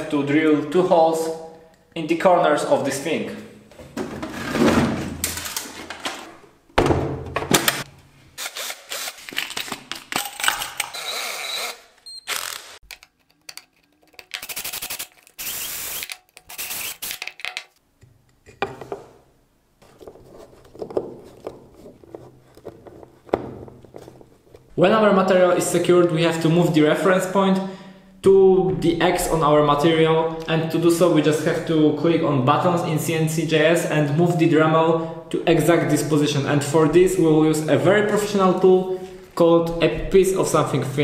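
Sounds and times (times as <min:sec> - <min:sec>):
tools knocking and clattering: 0:05.1 - 0:07.9, 0:17.2 - 0:19.2, 0:19.9 - 0:24.7
cordless drill boring into wood: 0:10.8 - 0:12.8, 0:14.4 - 0:17.2.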